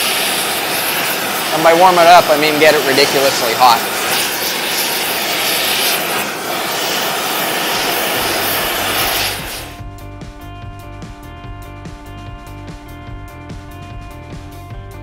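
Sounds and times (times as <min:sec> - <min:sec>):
gas torch flame hissing: 0:00.0 - 0:09.8
music with a steady beat: 0:09.7 - 0:15.0.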